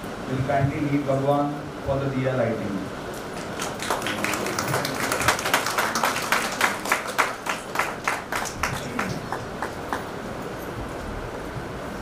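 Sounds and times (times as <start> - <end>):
audience applause: 3.4 - 10.2.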